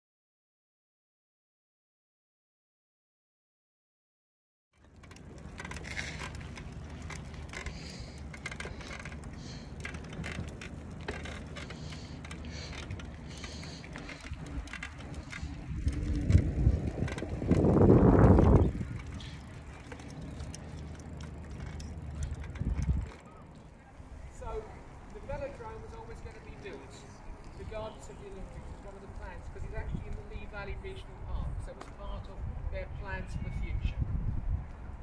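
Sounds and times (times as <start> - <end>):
freewheel and chain clicking: 4.8 - 23.7
trike rolling on paved path: 4.8 - 35.0.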